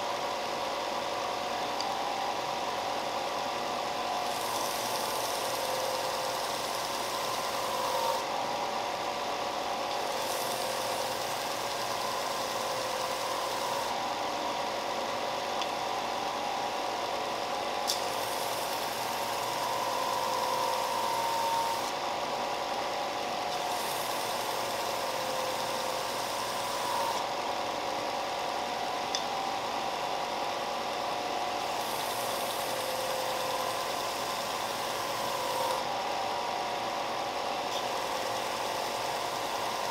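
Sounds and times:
belt sander running: 4.0 - 27.5, 31.6 - 39.9.

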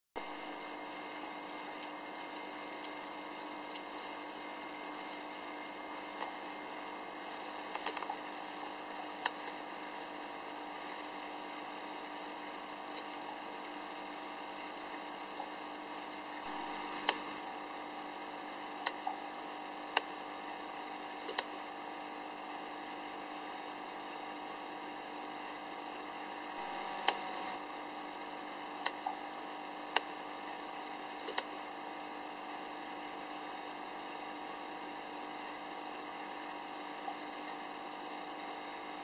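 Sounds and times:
aquarium filter motor hum: 0.2 - 39.0.

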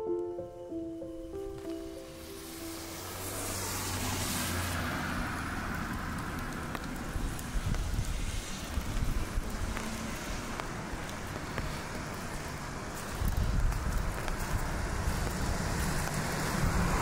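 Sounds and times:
car tyres hissing on wet road: 1.8 - 17.0
light ticks: 5.8 - 8.0.

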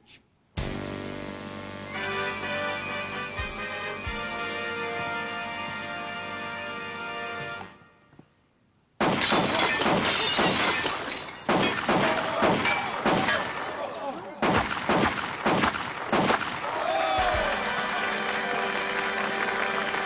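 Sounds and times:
targets shattering: 9.0 - 17.4.

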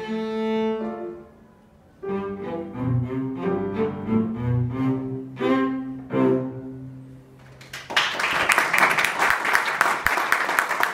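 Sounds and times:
cello playing: 0.0 - 7.4
piano chords: 0.0 - 7.4
audience applause: 7.6 - 10.9.

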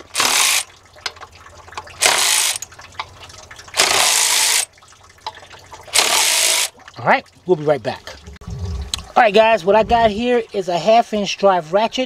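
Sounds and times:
rapid ratcheting: 2.0 - 2.6, 3.8 - 4.7, 5.9 - 6.7.

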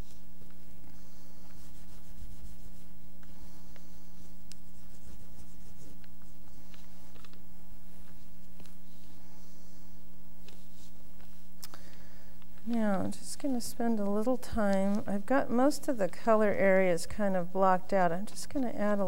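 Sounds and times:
oil pastel scratching on paper: 0.0 - 9.8, 10.4 - 11.5.

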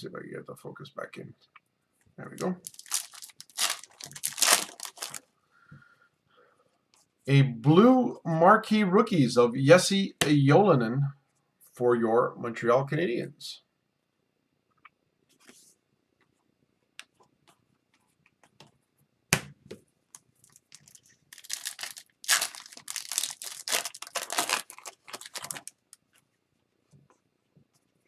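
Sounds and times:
card pack wrapper tearing: 2.6 - 5.2, 20.5 - 26.0.

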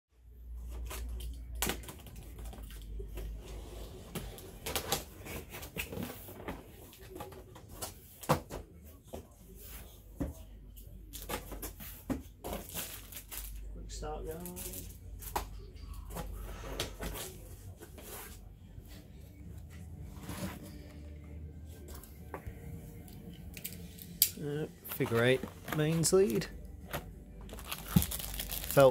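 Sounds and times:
cardboard packaging rustling: 24.8 - 28.9.

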